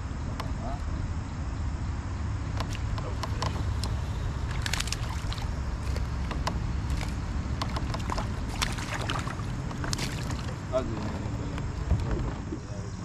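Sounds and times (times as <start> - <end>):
wind rumbling on microphone: 0.0 - 13.0
small water splashes: 2.6 - 13.0.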